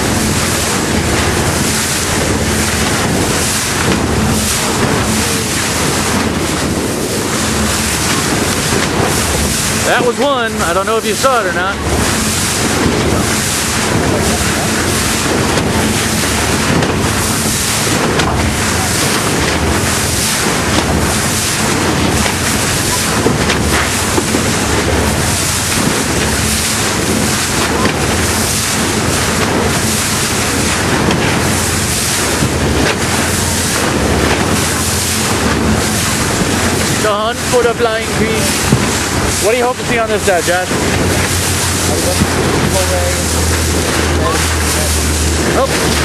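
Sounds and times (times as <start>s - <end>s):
sea water rushing along boat: 0.0s - 46.0s
steady low hum: 0.0s - 46.0s
wind buffeting microphone: 0.0s - 46.0s.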